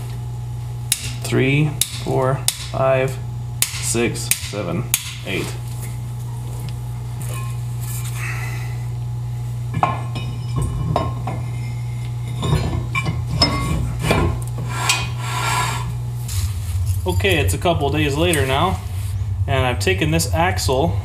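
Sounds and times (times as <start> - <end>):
steady low hum: 0.0 - 21.0
metal rotor clinking and scraping: 10.1 - 14.2.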